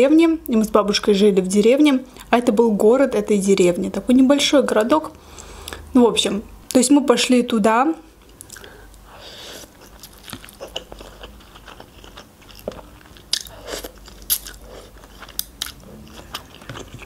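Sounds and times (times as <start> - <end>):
chewing noodles: 9.6 - 17.0.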